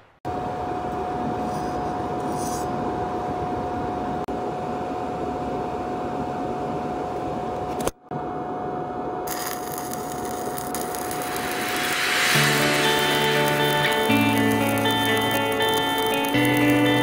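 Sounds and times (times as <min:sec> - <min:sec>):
machine high whine: 0:09.2 - 0:17.0
even rushing hum: 0:09.3 - 0:17.0.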